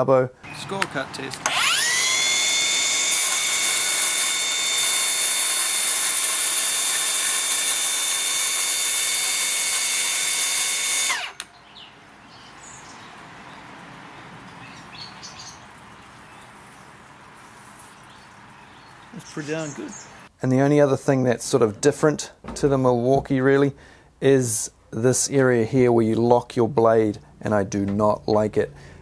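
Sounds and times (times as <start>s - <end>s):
power saw motor whine: 1.3s - 11.5s.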